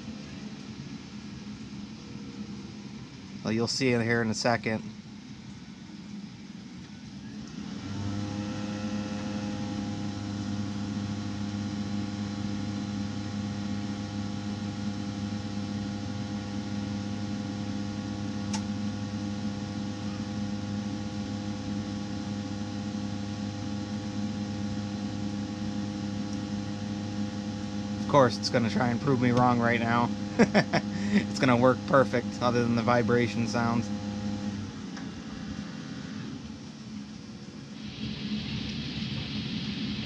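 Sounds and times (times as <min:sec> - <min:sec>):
blower motor vibrating hum: 0:00.0 - 0:40.0
click: 0:18.5 - 0:18.7.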